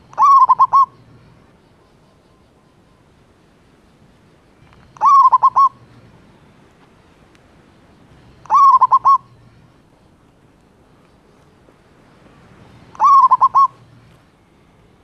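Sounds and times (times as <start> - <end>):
dove cooing: 0.0 - 1.0, 4.9 - 5.8, 8.4 - 9.3, 12.9 - 13.9.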